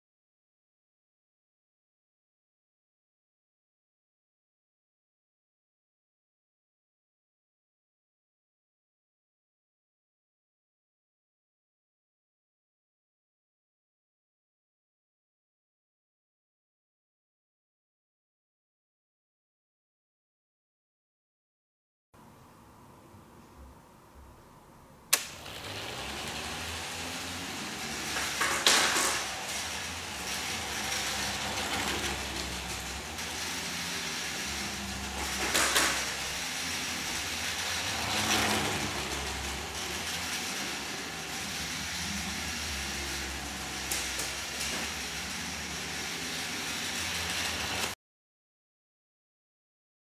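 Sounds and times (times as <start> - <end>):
toy car motor and gear whir: 25.2 - 48.0
wheels rolling on wooden floor: 25.2 - 48.0.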